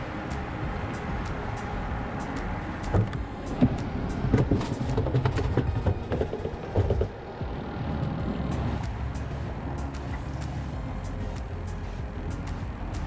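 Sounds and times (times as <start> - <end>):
steady low rumble: 0.0 - 13.0
handling knocks and clatter: 3.0 - 7.2.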